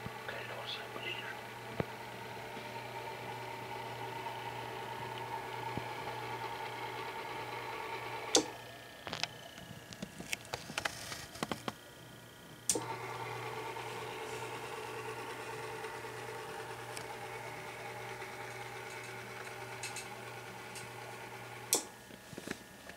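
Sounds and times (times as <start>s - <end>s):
small electric motor humming: 0.0s - 22.9s
sharp switch click: 8.3s - 8.5s.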